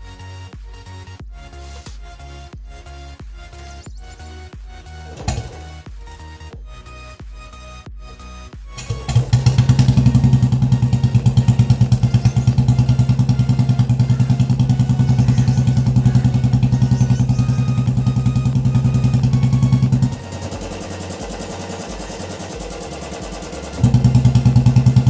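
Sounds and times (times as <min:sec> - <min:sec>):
motorcycle engine starting and idling: 0:05.1 - 0:05.9, 0:08.8 - 0:25.0.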